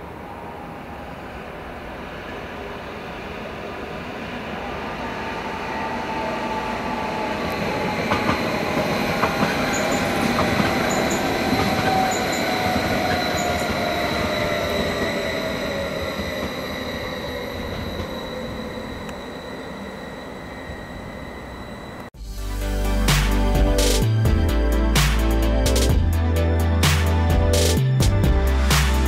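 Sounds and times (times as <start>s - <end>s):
train running past: 0.0s - 22.1s.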